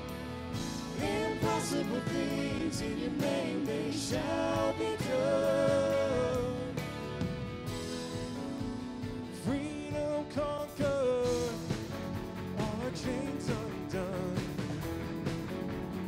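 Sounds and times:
worship band playing: 0:00.0 - 0:16.0
person singing: 0:01.0 - 0:06.9, 0:12.6 - 0:14.7.

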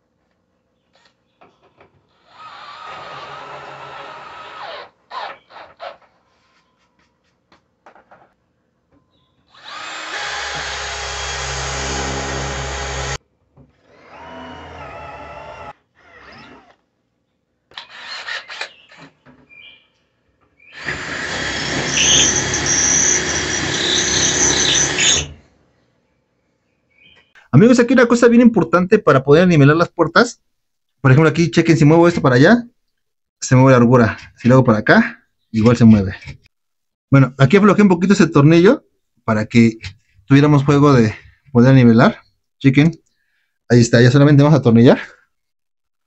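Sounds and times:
cordless drills running: 0:09.5 - 0:13.2, 0:20.8 - 0:25.4.

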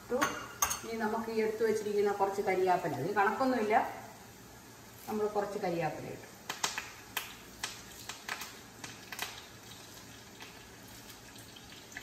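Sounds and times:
leaves popping in hot oil: 0:05.0 - 0:12.0.

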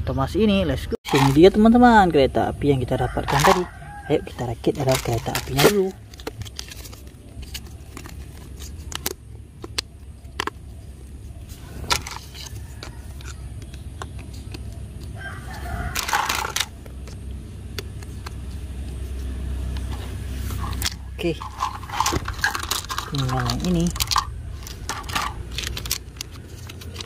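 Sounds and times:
rooster crowing: 0:02.9 - 0:04.5, 0:15.2 - 0:16.7
plastic toy track pieces clicking: 0:22.0 - 0:27.0.

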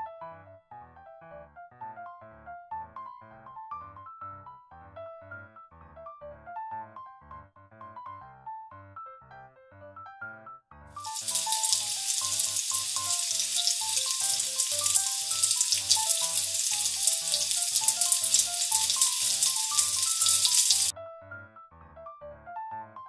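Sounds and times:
flatbread sizzling in oil: 0:11.0 - 0:20.9.

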